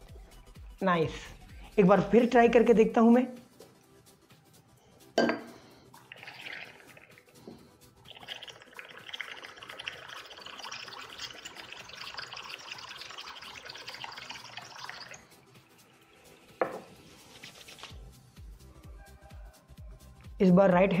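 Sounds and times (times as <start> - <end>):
can knocked on table: 5.2 - 5.5, 16.6 - 17.0.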